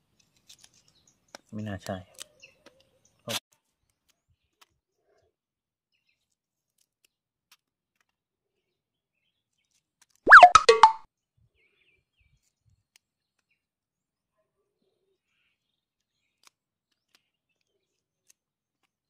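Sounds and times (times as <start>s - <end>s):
whistle-like chirp: 10.3s - 11.0s.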